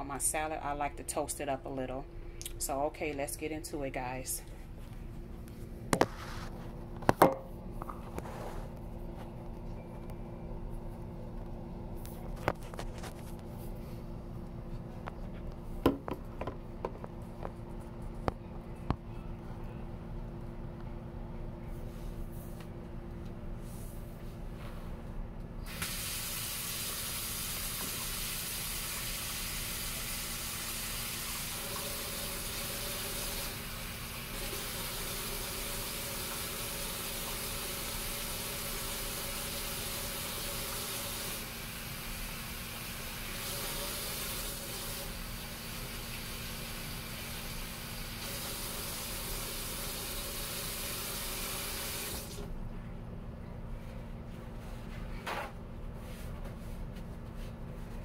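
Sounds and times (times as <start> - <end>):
faucet running into a sink: 25.7 - 33.6, 34.4 - 41.6.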